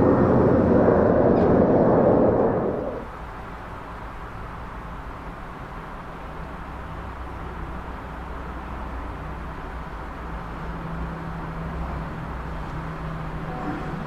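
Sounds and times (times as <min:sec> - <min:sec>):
distant engine rumble: 0:00.0 - 0:03.1
low steady hum: 0:00.0 - 0:03.2.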